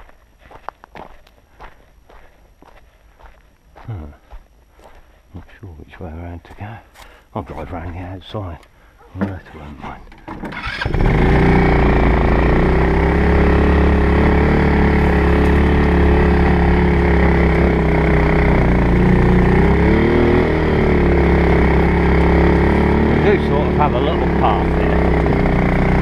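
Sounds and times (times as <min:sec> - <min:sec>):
utility vehicle engine running: 0:10.1 - 0:26.0.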